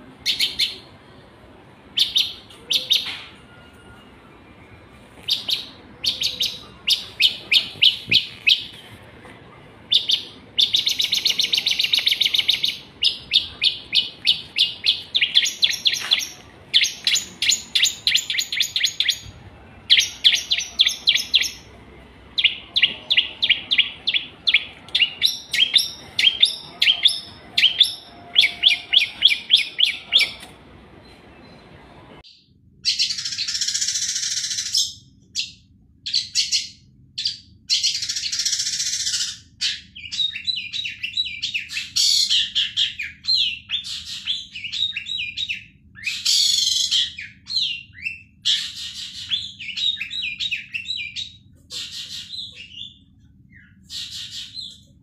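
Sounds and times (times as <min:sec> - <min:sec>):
shrike chattering song: 0:05.3 - 0:08.8, 0:09.9 - 0:30.5.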